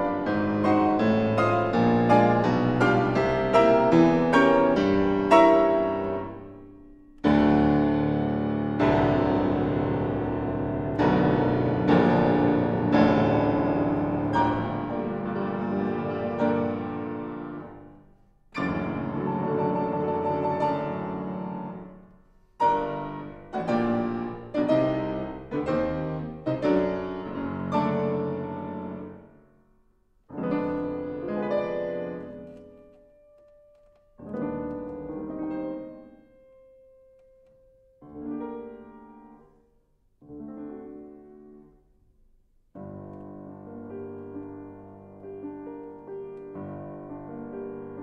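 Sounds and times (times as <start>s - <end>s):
loud piano chords: 0.0s - 48.0s.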